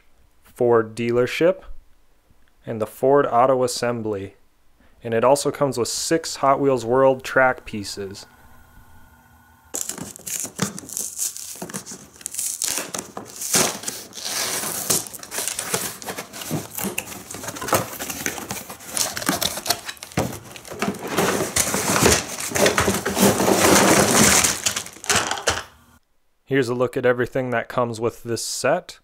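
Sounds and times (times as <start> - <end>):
cardboard box being opened: 9.7 - 25.2
plastic pieces crinkling and clattering: 9.7 - 25.7.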